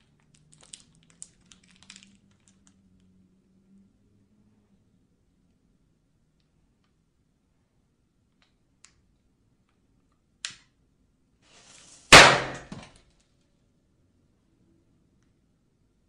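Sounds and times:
firecracker bang: 12.1s - 12.8s.

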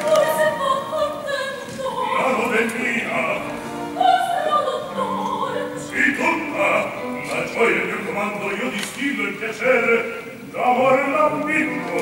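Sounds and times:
musical accompaniment: 0.0s - 12.0s
man singing opera: 2.0s - 3.7s, 5.8s - 12.0s.

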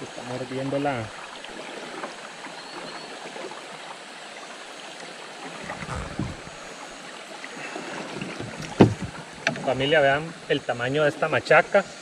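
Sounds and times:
flowing river water: 0.0s - 12.0s
soft low knocks: 5.6s - 6.8s, 8.2s - 9.6s.

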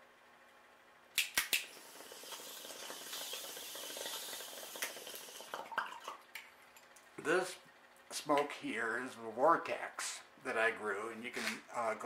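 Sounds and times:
water pipe bubbling: 2.0s - 6.8s.

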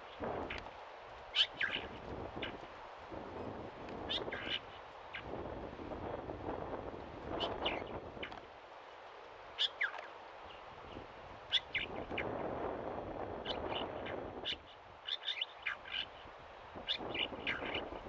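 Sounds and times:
mockingbird calls: 1.3s - 2.6s, 4.1s - 5.3s, 9.6s - 10.7s, 11.5s - 12.3s, 13.4s - 16.2s, 16.8s - 18.0s.

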